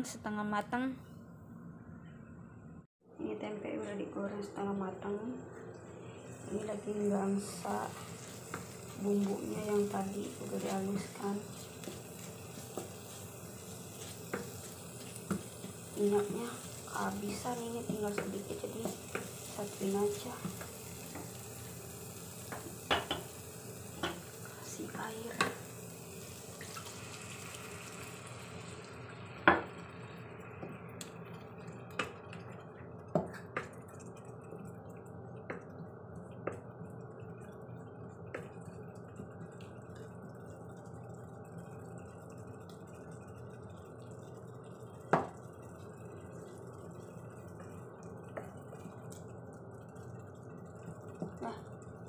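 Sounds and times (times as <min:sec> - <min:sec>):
food sizzling in a wok: 0:05.9 - 0:35.6, 0:36.4 - 0:52.0
water pouring: 0:25.6 - 0:30.2
simmering with small pops: 0:30.5 - 0:52.0.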